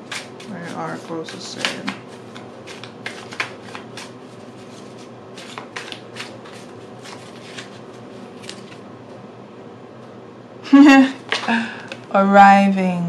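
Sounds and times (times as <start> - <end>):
cards being shuffled: 0.0 - 8.8.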